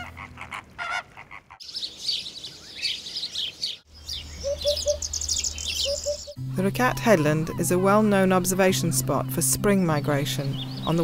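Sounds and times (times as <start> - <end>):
small birds chirping: 1.5 - 11.0
flamingos honking: 5.9 - 10.2.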